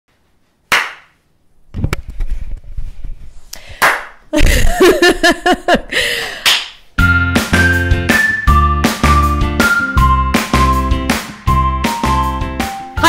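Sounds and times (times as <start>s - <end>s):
microphone handling noise: 1.7s - 3.5s.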